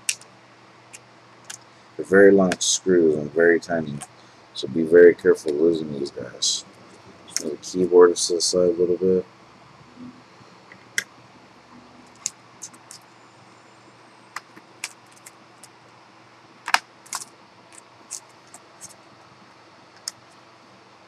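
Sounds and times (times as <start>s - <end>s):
keyboard clicks and taps: 16.7s - 17.3s.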